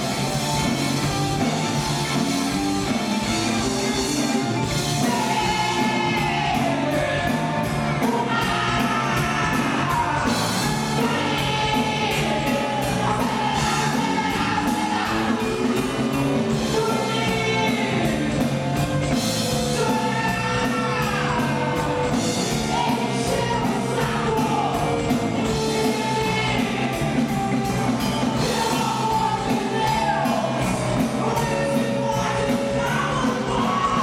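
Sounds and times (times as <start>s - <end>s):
drums: 0.0s - 34.0s
electric bass: 0.0s - 34.0s
electric guitar: 0.0s - 34.0s
woman singing: 4.9s - 18.5s, 19.7s - 27.4s, 28.3s - 34.0s.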